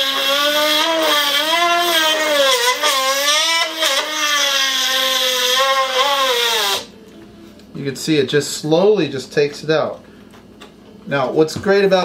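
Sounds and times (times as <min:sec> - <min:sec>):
rotary tool cutting wood: 0:00.0 - 0:06.9.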